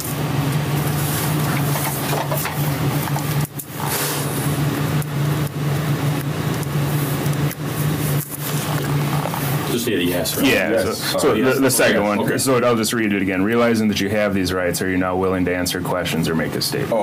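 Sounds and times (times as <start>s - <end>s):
low hum with hiss: 0.0s - 17.0s.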